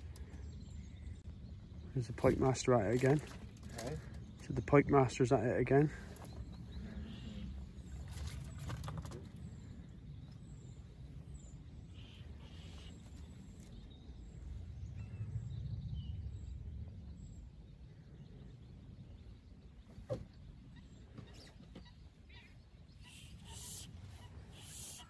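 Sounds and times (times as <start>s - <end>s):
low steady rumble: 0.0s - 24.7s.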